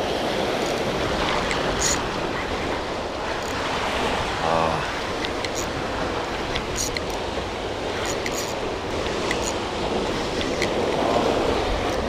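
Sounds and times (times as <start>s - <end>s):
surf washing against rocks: 0.0s - 12.0s
wind on microphone: 0.0s - 12.0s
faint ticks: 5.2s - 5.7s.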